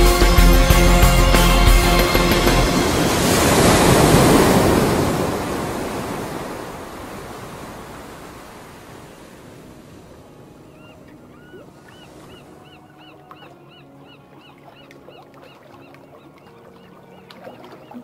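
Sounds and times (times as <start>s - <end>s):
rushing sea surf: 0.0s - 12.8s
wind: 0.0s - 18.0s.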